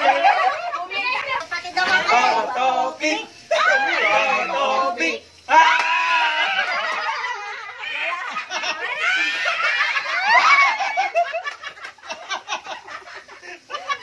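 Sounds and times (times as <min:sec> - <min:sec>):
people laughing hard: 0:00.0 - 0:01.0, 0:06.1 - 0:14.0.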